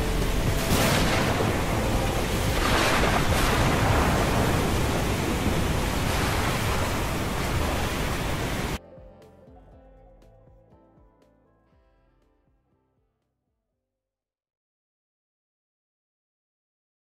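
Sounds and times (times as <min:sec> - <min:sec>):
pouring rain: 0:00.0 - 0:08.8.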